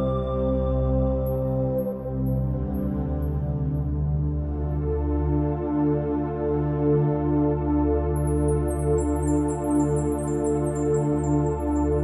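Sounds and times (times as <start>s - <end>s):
ambient music with held chords: 0.0s - 12.0s
high twinkling notes: 7.8s - 12.0s.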